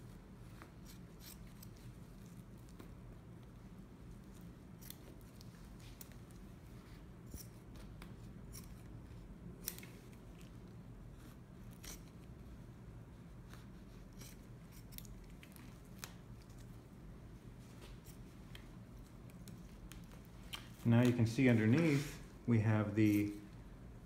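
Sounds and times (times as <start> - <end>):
low steady hum: 0.0 - 24.0
scissors snipping: 4.7 - 6.3, 9.6 - 10.0, 14.1 - 16.7.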